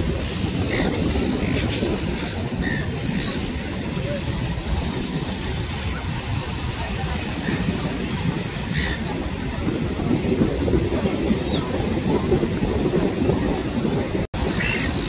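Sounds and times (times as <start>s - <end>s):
surf: 0.0s - 15.0s
wind buffeting microphone: 0.0s - 15.0s
faint gull calls: 14.5s - 15.0s.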